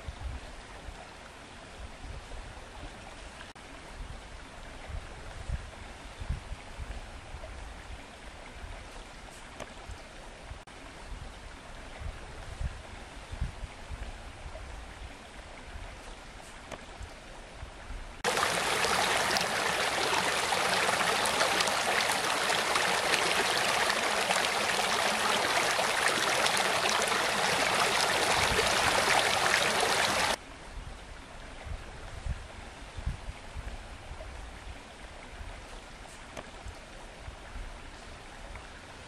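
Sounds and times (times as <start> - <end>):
stream rushing over stones: 18.2 - 30.4.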